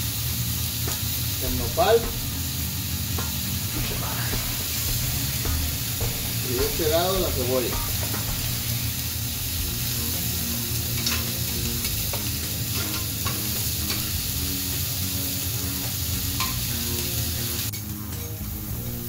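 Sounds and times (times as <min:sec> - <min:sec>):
meat and onion sizzling on griddle: 0:00.0 - 0:19.0
spatula clicks on griddle: 0:11.0 - 0:14.1.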